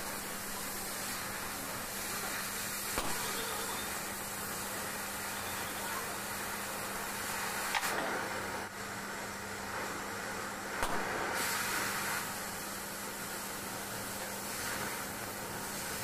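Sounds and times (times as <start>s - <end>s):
cutting torch hissing: 0.0s - 16.0s.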